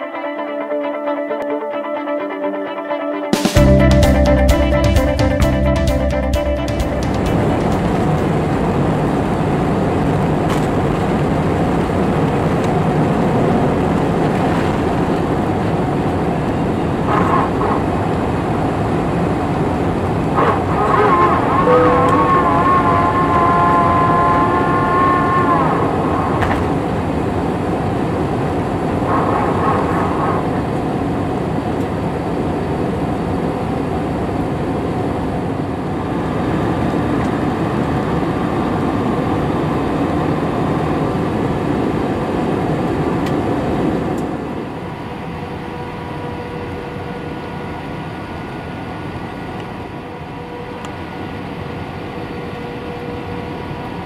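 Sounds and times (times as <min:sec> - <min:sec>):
jet engines rumbling: 0:03.5 - 0:54.0
whining tone: 0:03.6 - 0:31.1.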